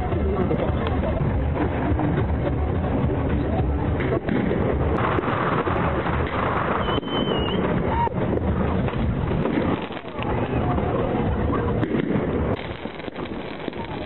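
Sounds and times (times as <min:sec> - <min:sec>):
fireworks exploding: 0:00.0 - 0:14.0
high firework whistle: 0:06.6 - 0:08.2.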